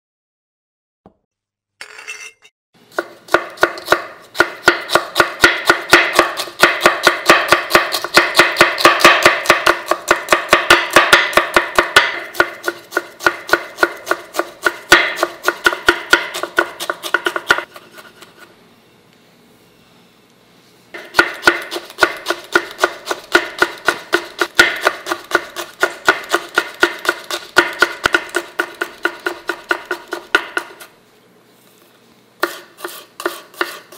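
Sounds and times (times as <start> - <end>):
knife chopping on wooden board: 2.9 - 18.2, 21.0 - 30.9, 32.4 - 33.9.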